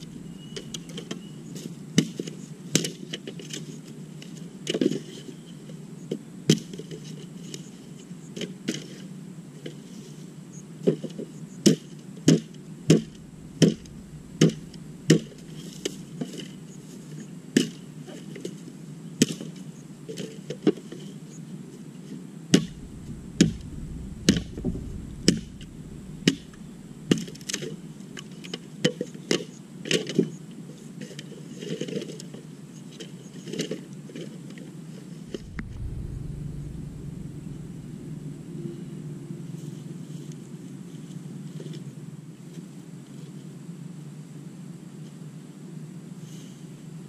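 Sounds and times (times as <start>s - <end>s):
rustle and clatter of sticks: 31.0s - 34.6s.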